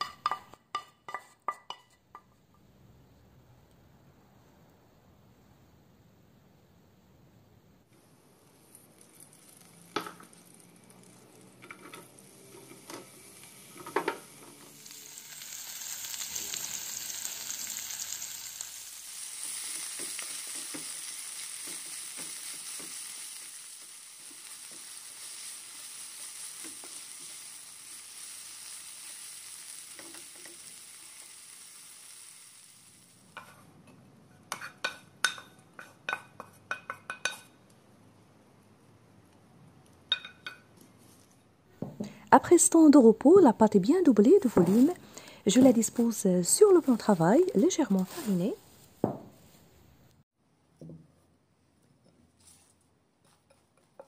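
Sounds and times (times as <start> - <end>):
vegetables sizzling in oil: 8.2 - 33.7, 42.1 - 49.6.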